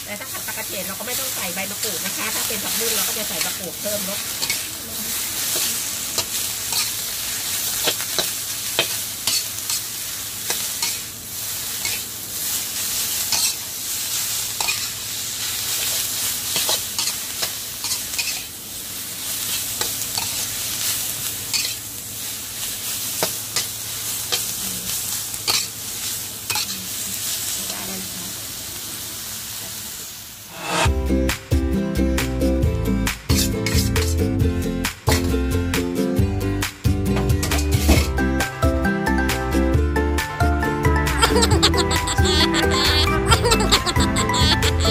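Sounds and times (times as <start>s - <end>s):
greens sizzling in a wok: 0.0s - 35.4s, 36.8s - 39.4s, 41.2s - 44.9s
spatula scraping and clinking on wok: 6.2s - 6.9s, 7.8s - 9.8s, 13.3s - 13.6s, 14.6s - 15.0s, 16.5s - 18.5s, 21.5s - 21.8s, 26.5s - 26.8s, 33.3s - 34.2s.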